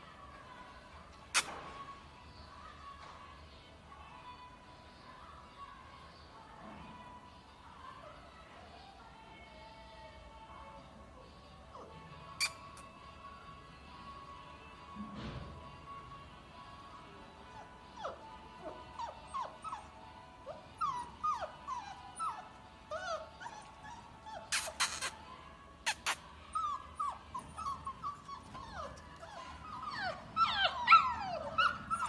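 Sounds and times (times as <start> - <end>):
puppies whimpering and yipping: 17.4 - 25.2, 25.8 - 32.0.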